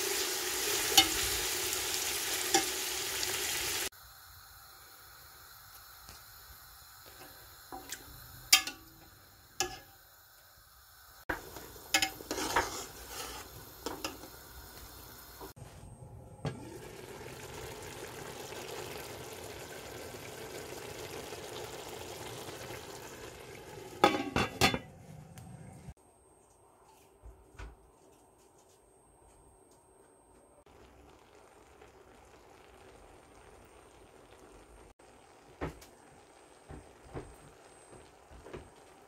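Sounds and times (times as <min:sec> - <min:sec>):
steady hiss: 0:00.0 - 0:15.6
metal spatula knocking pot: 0:08.5 - 0:09.0, 0:09.6 - 0:09.9, 0:11.3 - 0:12.6.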